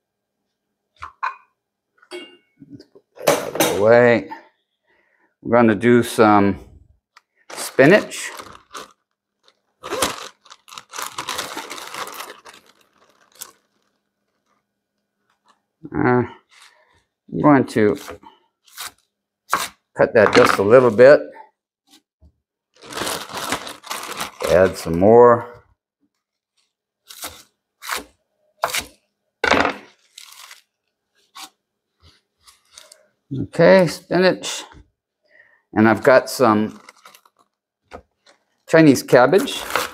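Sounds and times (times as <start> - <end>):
spinach crinkling and rustling: 7.5 - 14.6, 22.7 - 25.0, 29.9 - 31.6, 36.2 - 39.9.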